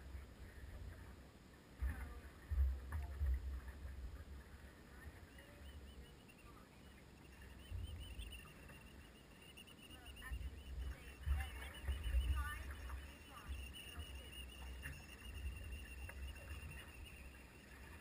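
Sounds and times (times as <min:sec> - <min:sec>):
faint high chirps: 0:04.9 - 0:18.0.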